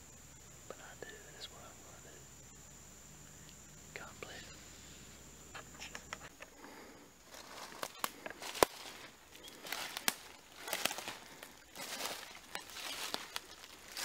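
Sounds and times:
person breathing heavily: 0:06.4 - 0:14.0
footsteps crunching through dry leaves: 0:07.2 - 0:14.0.

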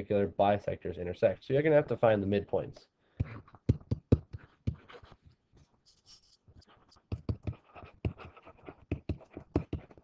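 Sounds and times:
stylus tapping and scratching: 0:03.1 - 0:10.0.

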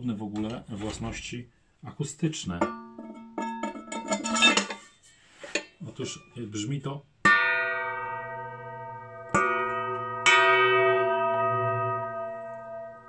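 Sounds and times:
metal stand base ringing: 0:02.6 - 0:04.9, 0:07.3 - 0:13.0.

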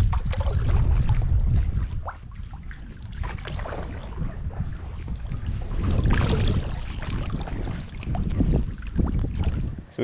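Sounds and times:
paddle splashing in water: 0:00.0 - 0:10.0
wind rumble on microphone: 0:00.0 - 0:10.0.

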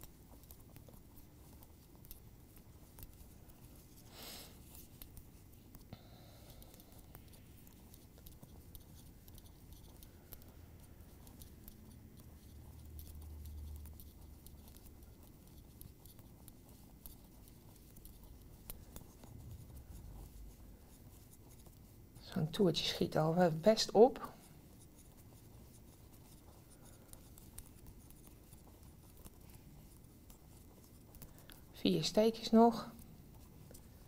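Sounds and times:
knitting needles clicking: 0:04.7 - 0:20.4.

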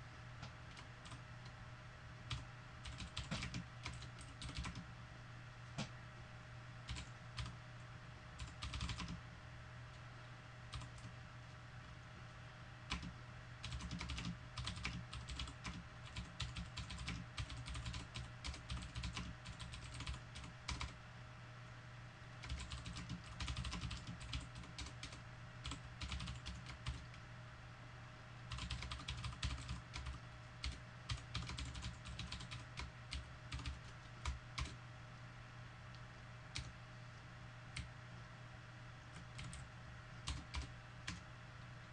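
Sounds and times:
faint hum: 0:00.0 - 0:41.9
keyboard typing: 0:02.3 - 0:04.8, 0:06.9 - 0:07.6, 0:08.4 - 0:09.2, 0:10.7 - 0:11.2, 0:12.9 - 0:21.0, 0:22.4 - 0:27.2, 0:28.5 - 0:34.8, 0:36.5 - 0:36.8, 0:39.1 - 0:41.2.

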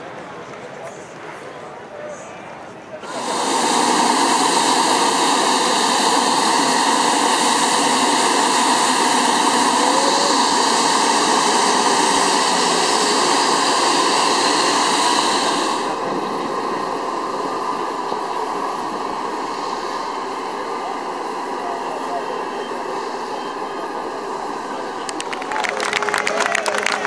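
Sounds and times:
jet engines running with whine: 0:00.0 - 0:27.0.

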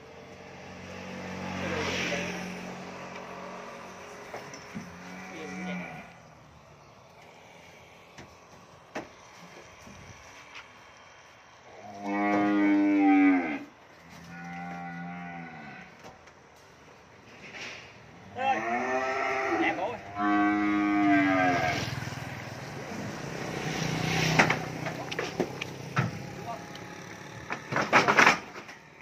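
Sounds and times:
cattle mooing: 0:04.8 - 0:06.3, 0:11.7 - 0:16.0, 0:18.3 - 0:22.1.

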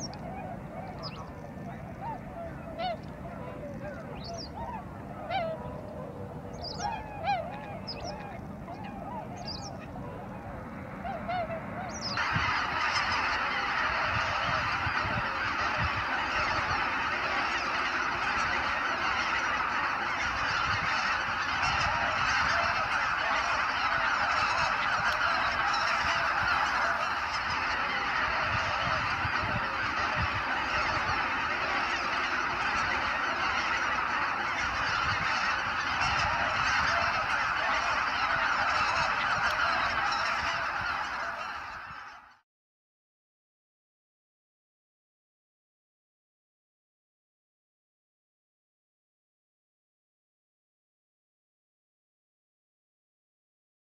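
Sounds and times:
flock chorus of calls: 0:00.0 - 0:42.4
waterfowl calls: 0:00.0 - 0:42.4.

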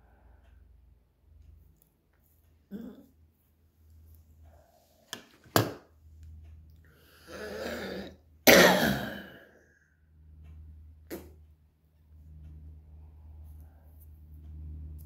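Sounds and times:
man coughing: 0:08.4 - 0:09.4.

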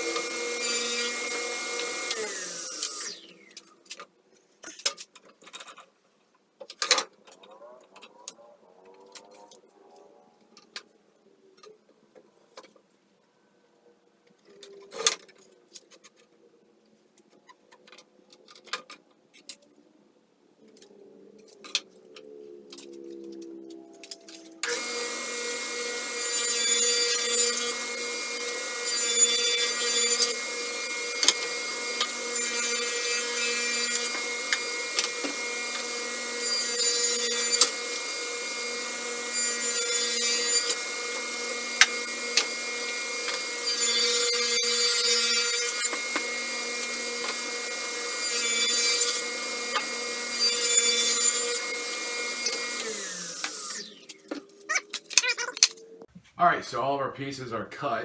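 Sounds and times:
saw winding down: 0:00.0 - 0:03.6, 0:22.8 - 0:54.8
table saw motor hum: 0:00.0 - 0:03.6, 0:22.2 - 0:54.8
table saw cutting wood: 0:00.0 - 0:03.7, 0:22.7 - 0:54.8.

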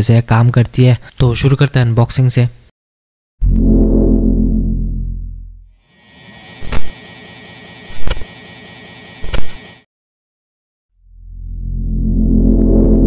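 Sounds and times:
low bass boom: 0:03.4 - 0:05.7
bright buzzing hiss: 0:05.8 - 0:09.8.

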